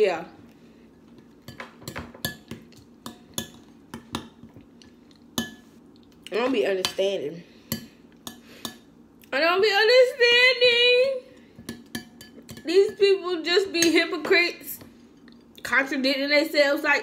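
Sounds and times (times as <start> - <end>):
woman's voice: 0.0 - 0.4, 6.3 - 7.5, 9.3 - 11.3, 12.6 - 14.9, 15.6 - 17.0.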